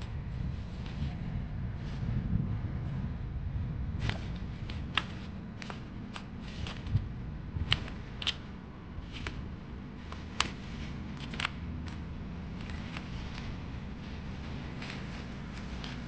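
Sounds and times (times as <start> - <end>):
steady low hum: 0.0 - 16.0
claws scratching cardboard: 4.0 - 16.0.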